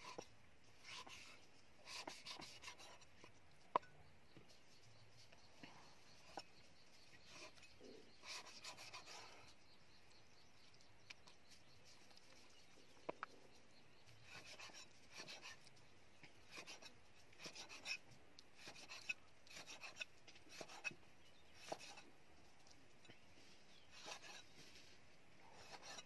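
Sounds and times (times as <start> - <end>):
knife slicing meat: 23.9 - 24.5.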